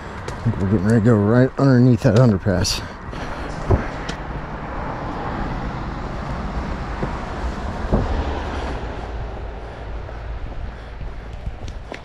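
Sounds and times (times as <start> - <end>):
highway traffic rumble: 0.0 - 12.0
thump: 7.9 - 8.2.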